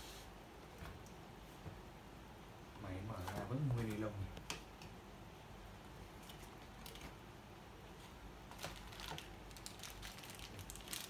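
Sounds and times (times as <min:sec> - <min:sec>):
plastic wrapping crinkling: 0:06.2 - 0:07.1, 0:08.5 - 0:11.0
cardboard packaging crinkling: 0:08.5 - 0:11.0.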